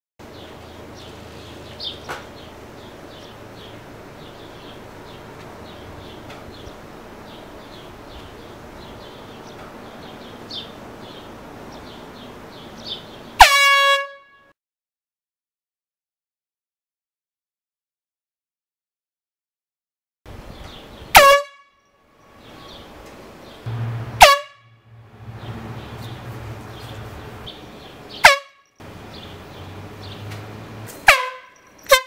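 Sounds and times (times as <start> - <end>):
air horn blast: 13.4 - 14.5, 21.1 - 21.7, 23.7 - 27.4, 28.2 - 28.6, 31.0 - 32.0.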